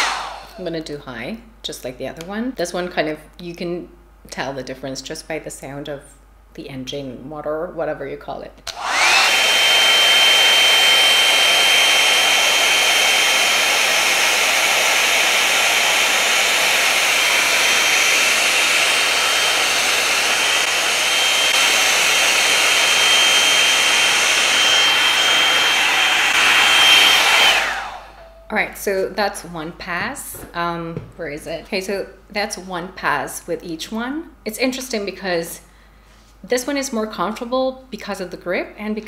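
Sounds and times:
hair dryer air rush: 0.0 - 0.6, 8.7 - 28.3
high motor whine: 8.7 - 28.3.

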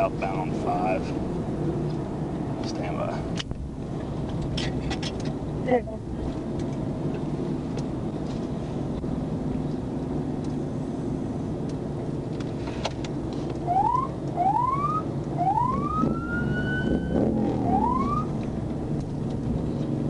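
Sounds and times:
car road and engine noise: 0.0 - 20.0
police siren whoops: 13.7 - 18.3.

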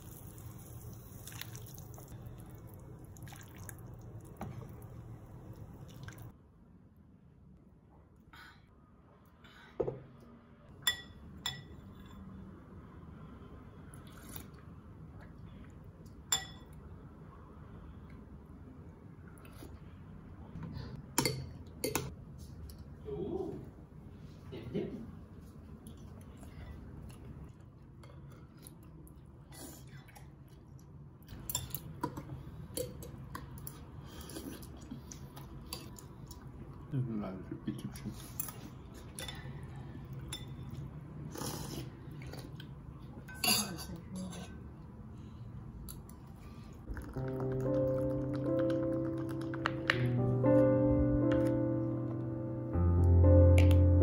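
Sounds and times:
dishes clinking: 43.3 - 44.4.

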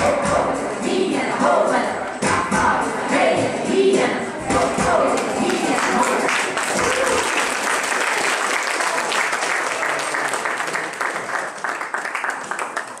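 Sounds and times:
audience applauding: 5.5 - 13.0.

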